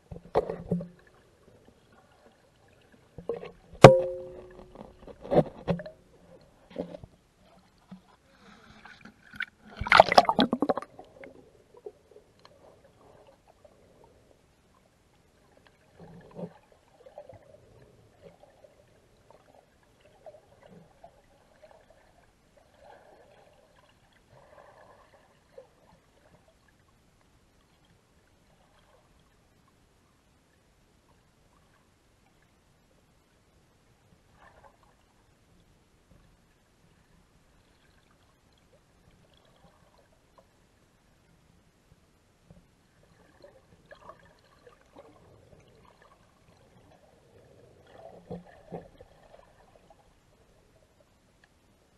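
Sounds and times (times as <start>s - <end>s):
underwater gurgling: 0.0s - 26.7s, 42.8s - 51.1s
splash: 9.2s - 10.9s.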